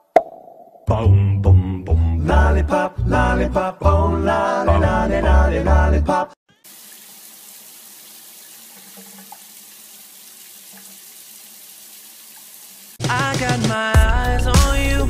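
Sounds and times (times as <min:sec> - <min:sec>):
bathtub tap running: 0:06.7 - 0:13.0
loud music: 0:13.0 - 0:15.0.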